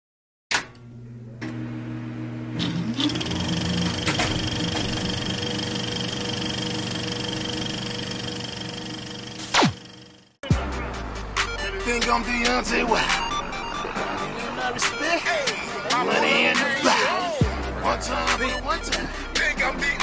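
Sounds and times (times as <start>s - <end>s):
film projector whirring: 2.5s - 10.3s.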